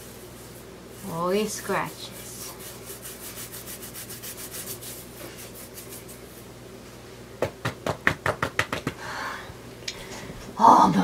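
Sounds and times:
hands scratching dog's coat: 0:01.3 - 0:06.2.

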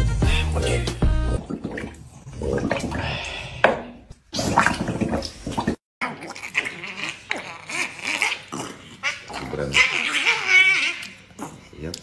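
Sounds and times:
water sloshing in a plastic tub: 0:01.4 - 0:06.8.

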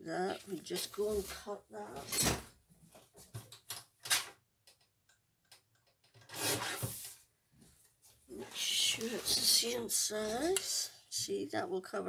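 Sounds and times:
small clicks and taps: 0:04.6 - 0:06.3.

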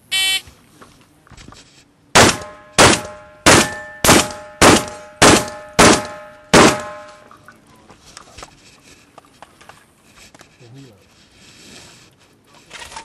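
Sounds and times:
shotgun shots: 0:02.2 - 0:07.1
steel targets ringing: 0:02.2 - 0:07.3.

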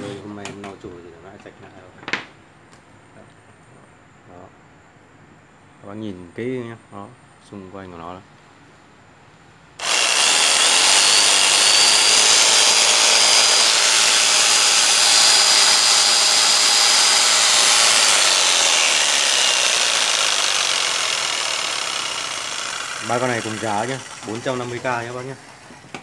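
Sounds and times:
electric jigsaw running: 0:09.8 - 0:25.6.

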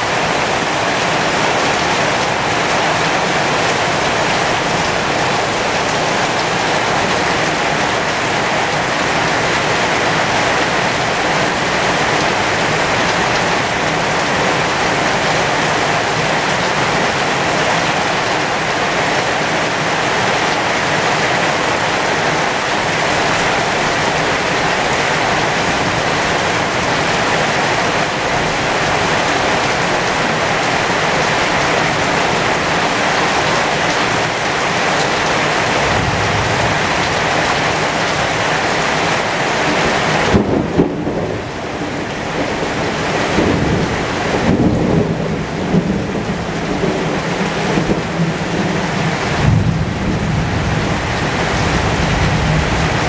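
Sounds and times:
heavy rain on leaves: 0:00.0 - 0:53.0
thunder rumbling: 0:31.5 - 0:53.0.

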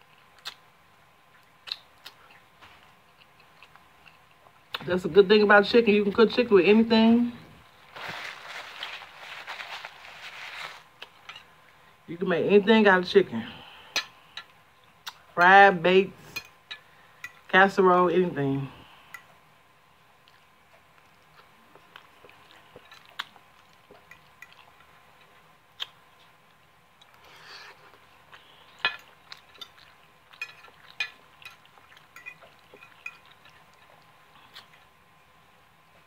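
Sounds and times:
faint chewing: 0:00.0 - 0:00.7, 0:01.3 - 0:04.9, 0:20.2 - 0:35.0.

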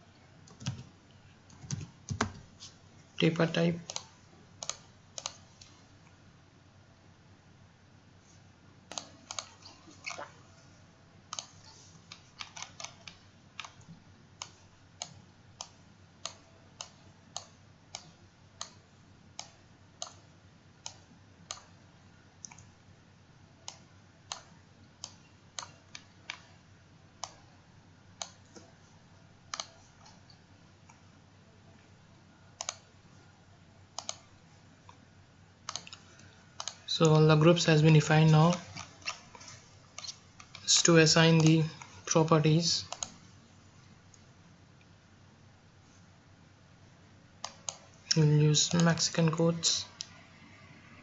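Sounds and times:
faint steady hum: 0:00.0 - 0:51.0
computer mouse clicking: 0:00.4 - 0:00.9, 0:03.8 - 0:05.8, 0:08.9 - 0:10.3, 0:11.3 - 0:18.8, 0:19.4 - 0:20.2, 0:20.8 - 0:21.8, 0:22.4 - 0:22.7, 0:23.6 - 0:26.6, 0:27.2 - 0:27.4, 0:28.2 - 0:28.7, 0:29.5 - 0:31.0, 0:32.6 - 0:32.9, 0:33.9 - 0:35.0, 0:35.6 - 0:41.9, 0:42.9 - 0:43.2, 0:47.4 - 0:49.1.

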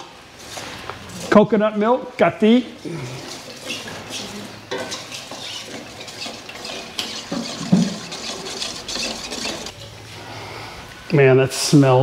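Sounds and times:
metal ladle scraping a pot: 0:03.2 - 0:10.0.

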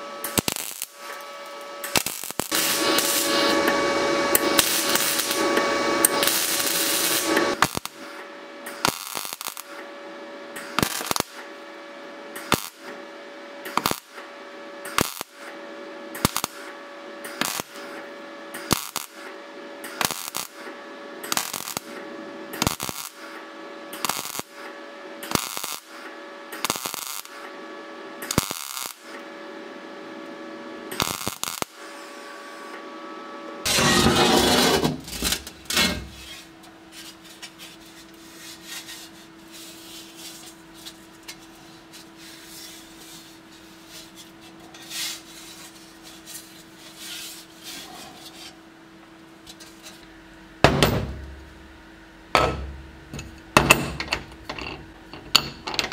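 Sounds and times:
welding arc crackling bursts: 0:00.0 - 0:09.8, 0:10.6 - 0:11.5, 0:12.4 - 0:12.9, 0:13.7 - 0:14.2, 0:14.9 - 0:15.5, 0:16.1 - 0:27.4, 0:28.2 - 0:29.2, 0:30.9 - 0:32.7, 0:33.6 - 0:36.6
welder humming: 0:00.0 - 0:55.9
wire-feed unit noise: 0:00.0 - 0:55.9.

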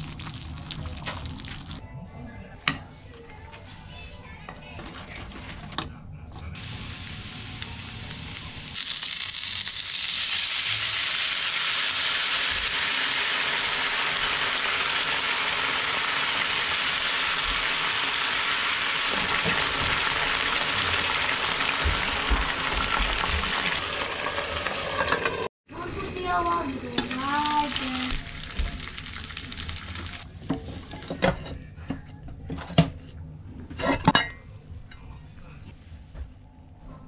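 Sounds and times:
water poured into hot pan: 0:00.0 - 0:01.8, 0:27.4 - 0:30.2
dumplings sizzling in oil: 0:06.6 - 0:25.5.

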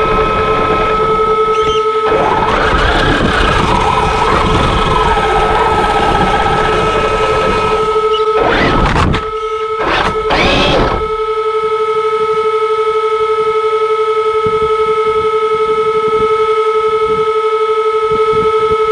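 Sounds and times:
electric motor whining: 0:00.0 - 0:11.4.

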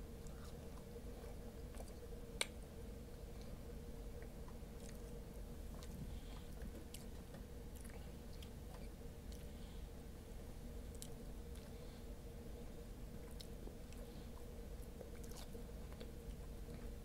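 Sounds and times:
faint wet chewing: 0:00.2 - 0:02.6, 0:04.2 - 0:09.5, 0:10.9 - 0:11.8, 0:13.1 - 0:17.0.

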